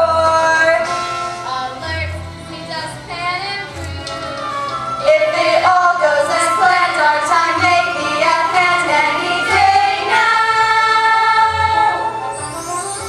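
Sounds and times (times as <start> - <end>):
musical accompaniment: 0.0 - 13.0
young cast singing: 5.0 - 13.0.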